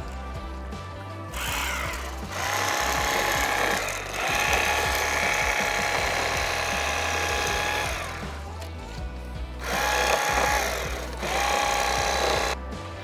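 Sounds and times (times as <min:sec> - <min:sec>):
electric knife motor whine: 0:01.3 - 0:08.4, 0:09.6 - 0:12.6.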